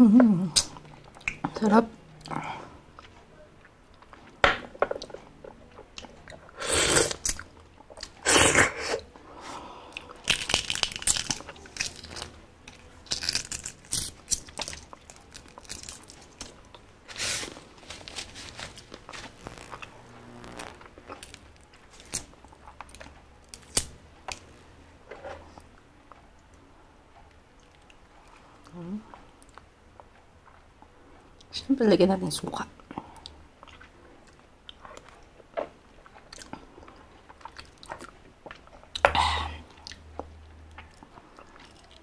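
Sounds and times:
eggshell peeling crackles: 10.0 - 24.4
chewing mouth noises: 33.2 - 42.0.

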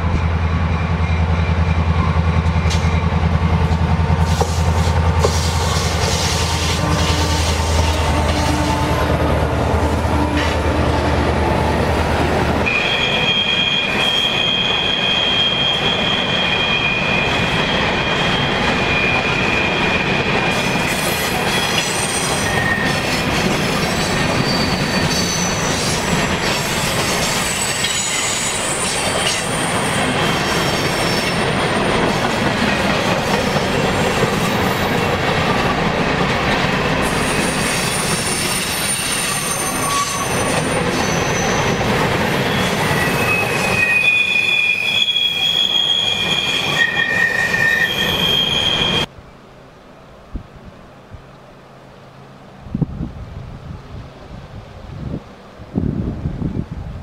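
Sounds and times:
freight train wheels rumbling: 0.0 - 49.2
high wheel squeal: 12.6 - 23.3, 23.9 - 31.7, 37.0 - 49.1.

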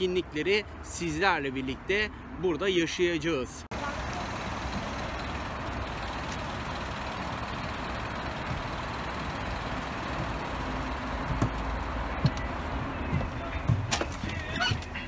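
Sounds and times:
coach engine rumbling: 3.7 - 15.0.

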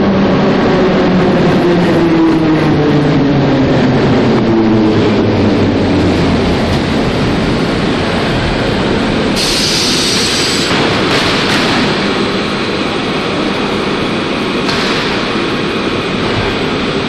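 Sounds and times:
electric train rumble and wheel noise: 0.0 - 17.0
train hiss: 9.3 - 10.8.

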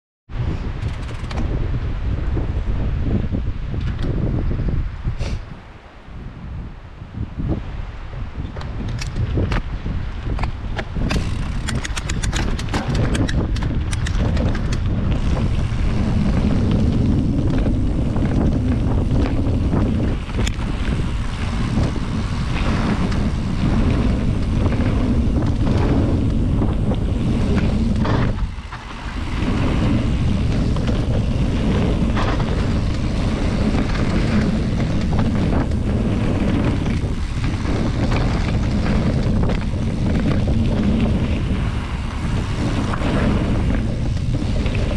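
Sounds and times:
wind buffeting microphone: 0.3 - 44.9
clicks: 10.4 - 14.9.

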